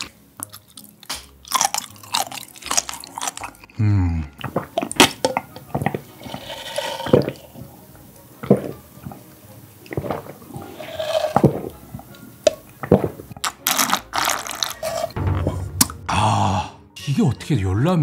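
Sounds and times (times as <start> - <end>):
person swallowing broth: 3.7 - 7.6, 8.4 - 9.3, 9.9 - 13.8
wet slurping: 4.4 - 7.7, 8.4 - 15.2.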